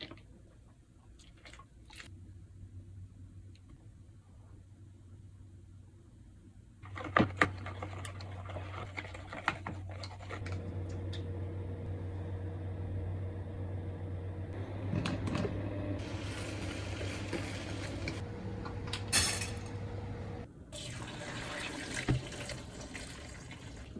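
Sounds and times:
hob low hum: 10.0 - 20.7.

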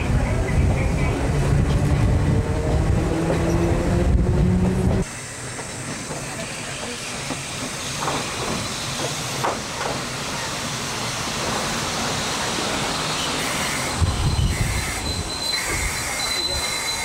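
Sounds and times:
train wheels and motors hissing: 1.4 - 17.0
high brake squeal: 6.3 - 9.4, 12.1 - 17.0.

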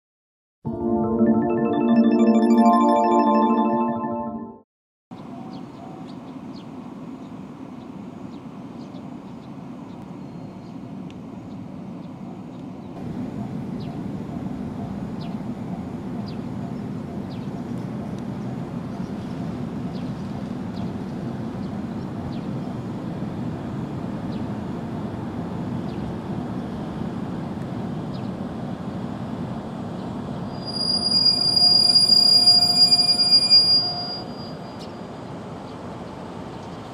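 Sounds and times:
electric train rumbling: 19.4 - 36.5
loud high-pitched squeal: 30.5 - 34.9.

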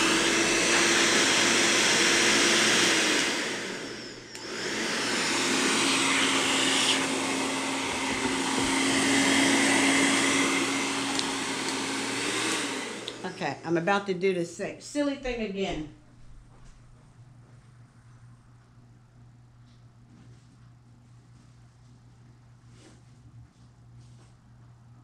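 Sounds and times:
hair dryer running: 0.0 - 14.0.

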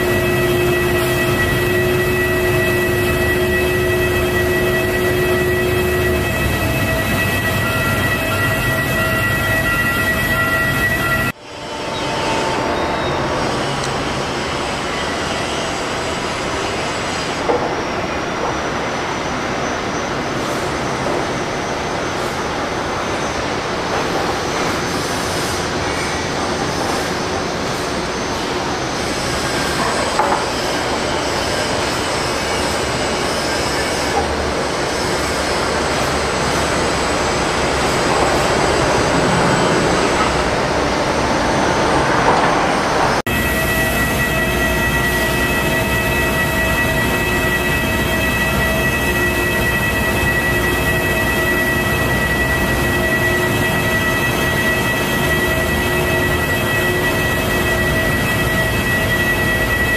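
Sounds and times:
high engine whine: 0.0 - 18.6.

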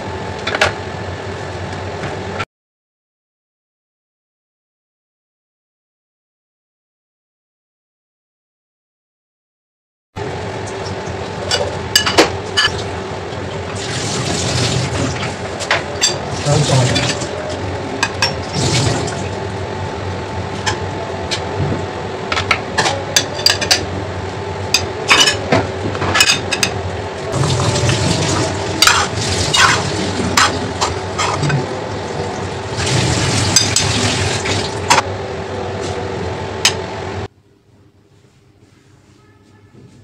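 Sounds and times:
steady hum: 10.2 - 40.0
dishes and utensils clinking: 11.4 - 12.9, 15.1 - 17.3, 18.0 - 19.1, 22.4 - 23.9, 24.8 - 26.8, 27.7 - 31.7
water running: 12.4 - 19.6, 27.2 - 35.0.

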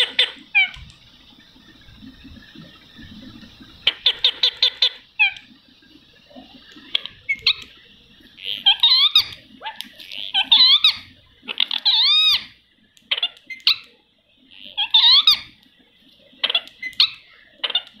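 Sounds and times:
parakeets squeaky calls: 8.4 - 9.4, 10.1 - 13.9, 14.6 - 15.6, 16.4 - 17.9.

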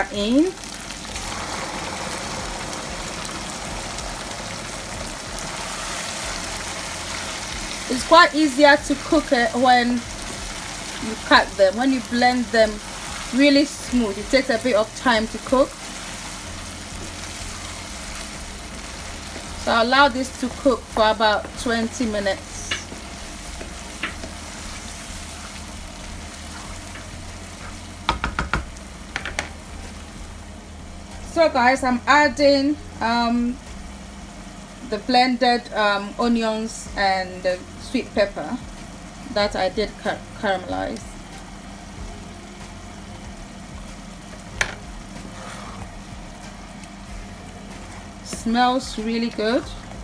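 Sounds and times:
stew sizzling in oil: 0.0 - 50.0
sharp knocks: 28.1 - 29.6.

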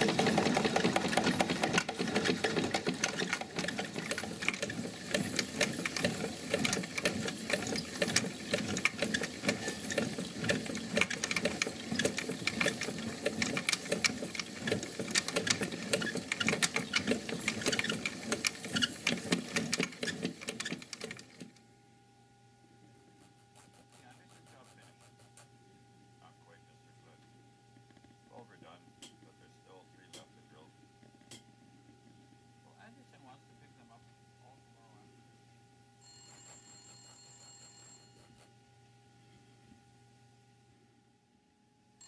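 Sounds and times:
miniature steam engine clatter: 0.0 - 21.5.

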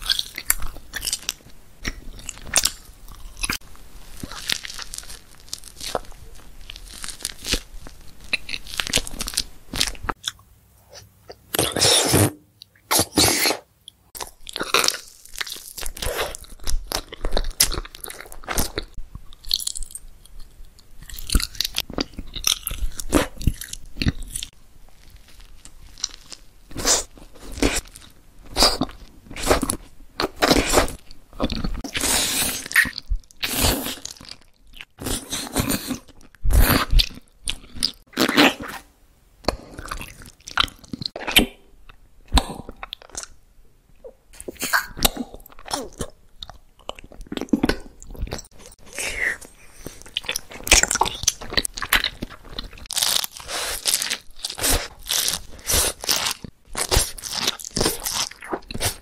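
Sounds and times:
biting and wet chewing: 44.0 - 59.0.

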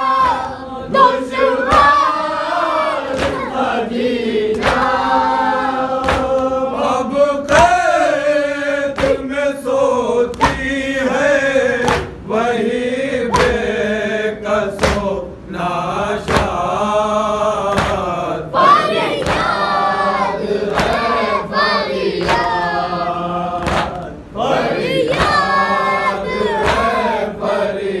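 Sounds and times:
men chanting in unison: 0.0 - 28.0
chest beating slaps: 1.6 - 2.2, 3.0 - 3.6, 4.5 - 5.0, 6.0 - 6.5, 9.0 - 9.3, 10.3 - 10.8, 11.8 - 12.2, 13.3 - 13.8, 14.8 - 15.2, 16.2 - 16.6, 17.7 - 18.2, 19.2 - 19.7, 20.7 - 21.2, 23.6 - 24.2, 25.1 - 25.5, 26.6 - 27.1.

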